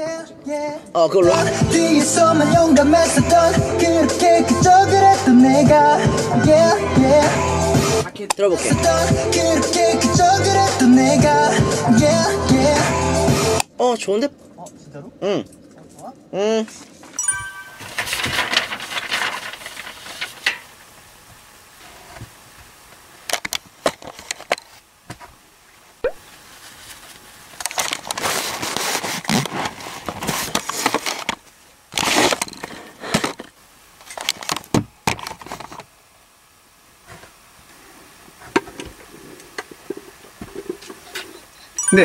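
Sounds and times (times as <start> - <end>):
fabric rustling on microphone: 17.8 - 20.5.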